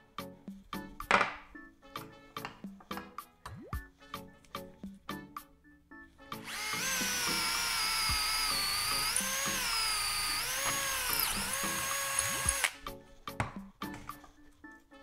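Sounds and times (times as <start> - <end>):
cordless drill boring into wood: 6.4 - 12.8.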